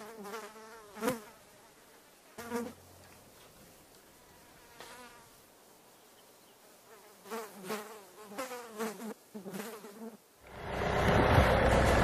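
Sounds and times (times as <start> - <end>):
flies buzzing: 0.0 - 10.5
loud steady rushing noise: 10.4 - 12.0.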